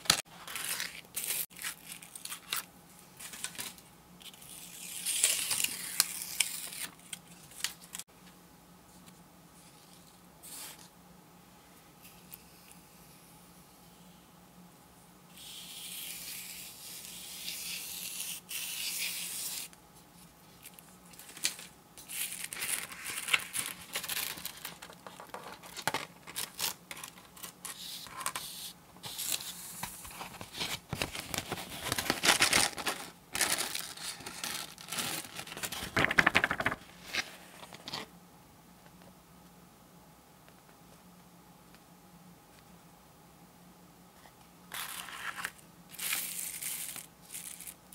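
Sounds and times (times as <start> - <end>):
paper crackling and rustling: 0.0 - 8.0, 20.6 - 38.1.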